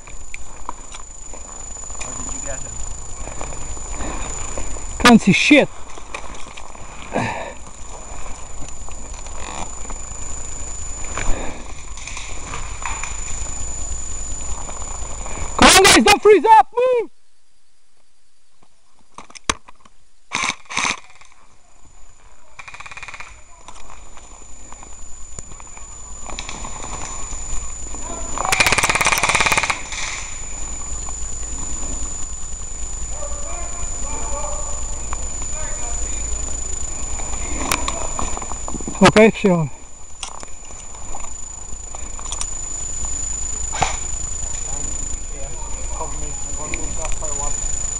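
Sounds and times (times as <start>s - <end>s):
airsoft gun automatic fire: 20.3s - 21.2s, 22.6s - 23.4s, 28.4s - 30.3s.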